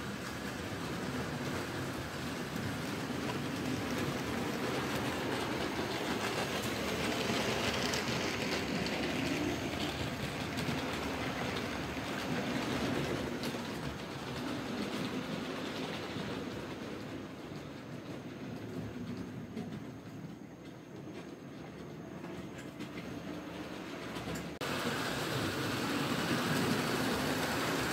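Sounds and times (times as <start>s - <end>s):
model train wheels rumbling on track: 0.0s - 27.9s.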